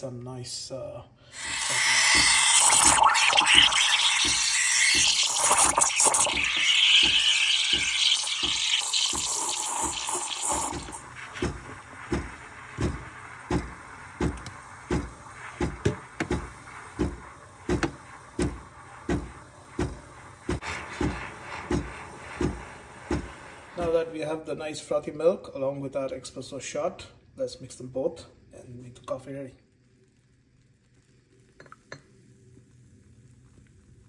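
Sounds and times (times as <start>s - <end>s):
steam wand hissing: 1.3s - 24.4s.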